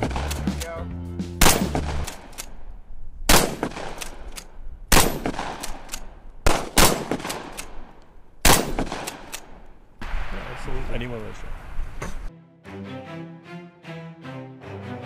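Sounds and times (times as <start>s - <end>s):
fainter gunshots: 0.0s - 0.8s, 1.4s - 2.3s, 3.3s - 4.2s, 4.9s - 7.7s, 8.4s - 9.4s
rifle shots with echo: 1.4s - 2.6s, 3.3s - 10.7s.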